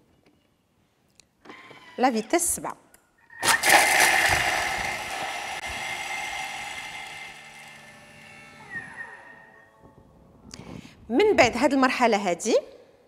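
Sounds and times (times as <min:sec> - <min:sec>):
food processor motor and blade: 0:03.4 - 0:09.3.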